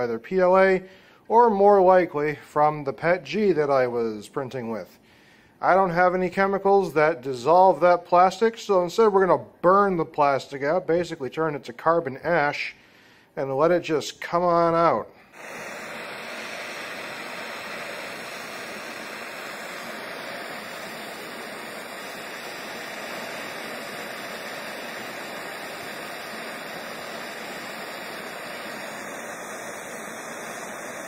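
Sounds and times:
gas torch flame hissing: 14.6s - 31.0s.

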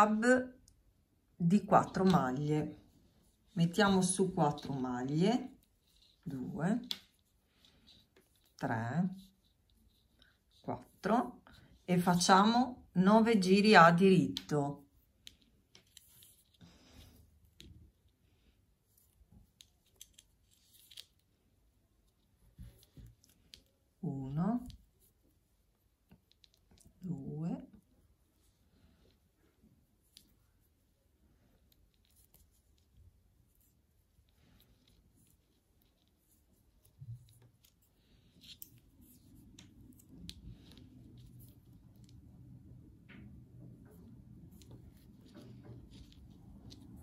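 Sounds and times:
knitting needles clicking: 5.9s - 7.2s, 19.5s - 21.2s, 38.4s - 47.0s.

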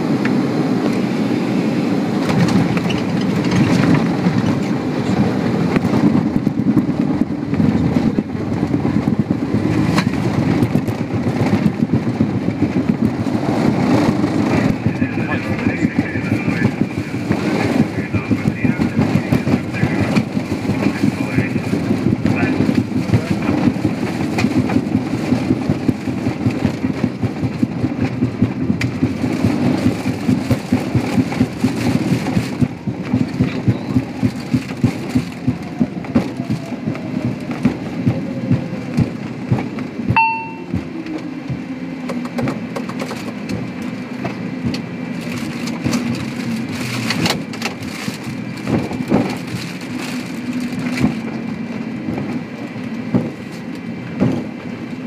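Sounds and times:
falling engine whine: 0.0s - 55.0s
jet engine hum: 0.0s - 55.0s
wheels thumping over runway joints: 0.0s - 55.0s
short electronic beep: 40.2s - 40.7s.

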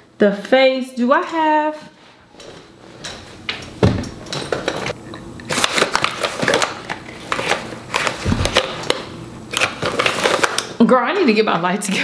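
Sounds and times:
containers clicking and rustling: 4.3s - 10.8s.

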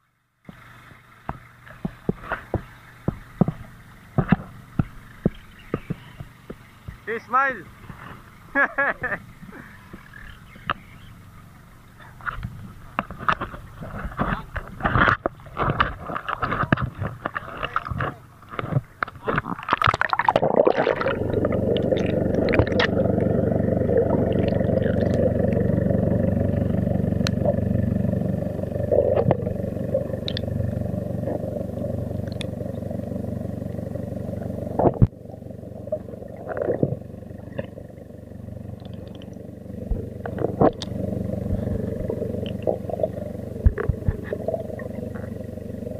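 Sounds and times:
muffled underwater rumble: 0.5s - 45.9s
splashing at sea surface: 19.2s - 23.2s.

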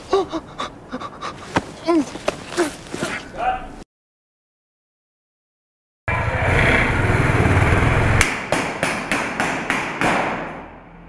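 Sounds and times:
loud rushing noise with rumble: 6.1s - 9.1s.

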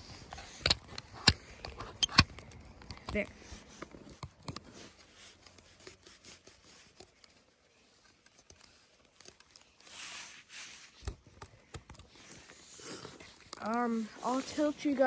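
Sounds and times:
small clicks and knocks: 0.3s - 5.8s.

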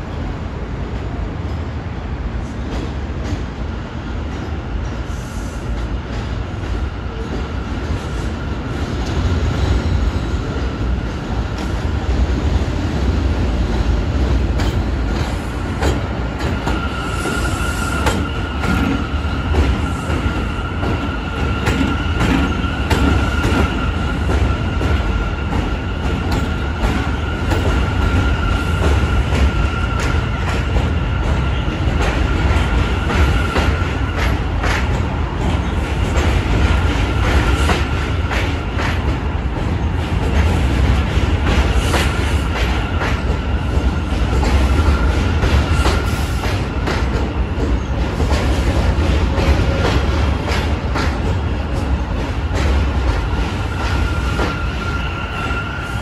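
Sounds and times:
train rumbling: 0.0s - 56.0s
high-pitched train whine: 3.8s - 56.0s
rail-joint clicks: 14.2s - 54.9s.

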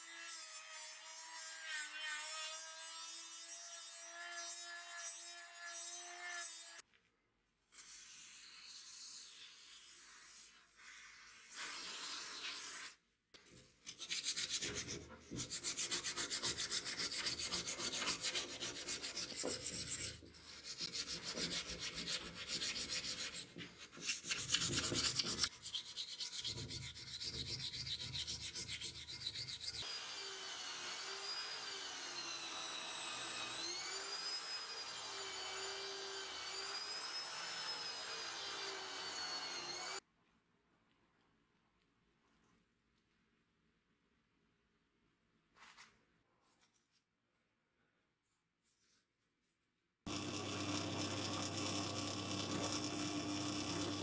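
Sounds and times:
sandpaper rubbing metal: 14.0s - 29.8s.

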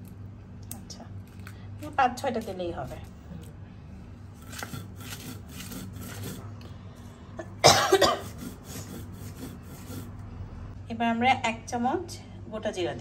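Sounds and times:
stone roller grinding on stone slab: 4.4s - 6.5s, 8.2s - 10.2s
person coughing: 7.4s - 9.0s.

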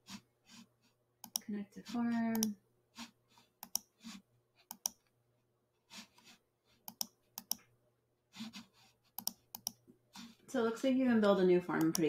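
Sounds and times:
computer mouse clicks: 1.2s - 1.4s, 2.3s - 2.6s, 3.6s - 5.1s, 6.2s - 7.7s, 8.4s - 9.8s, 11.8s - 12.0s.

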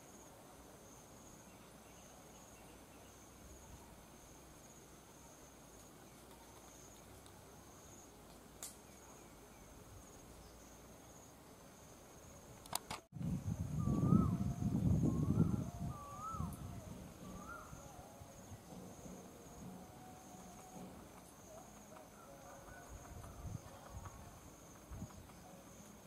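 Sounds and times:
sharp click: 12.6s - 13.1s
high-pitched insect trill: 13.2s - 26.0s.

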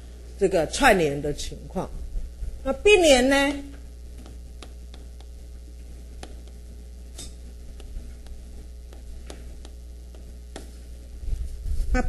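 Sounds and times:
low electrical hum: 0.0s - 12.0s
pen tapping on board: 4.2s - 5.3s, 6.2s - 6.6s, 7.8s - 10.7s.

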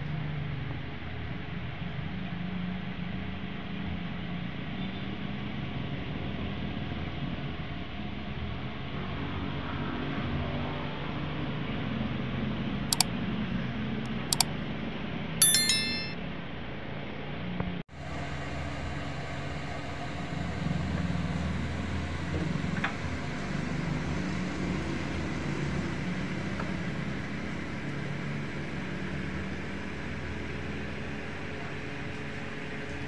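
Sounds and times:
ringing metallic clink: 15.4s - 16.2s
sharp clicks: 15.4s - 16.2s.

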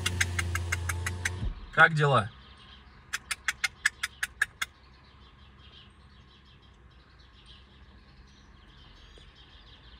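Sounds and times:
sharp click: 0.0s - 1.5s
faint birds chirping: 0.0s - 9.9s.

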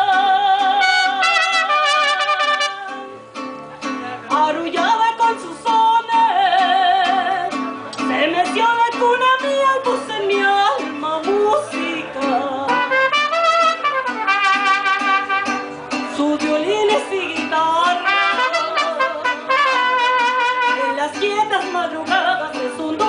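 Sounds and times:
mariachi band playing: 0.0s - 23.0s
strummed guitar rhythm: 0.0s - 23.0s
trumpets playing melody: 0.8s - 3.0s, 12.7s - 15.7s, 18.0s - 20.9s
plucked bass guitar: 2.6s - 12.9s.

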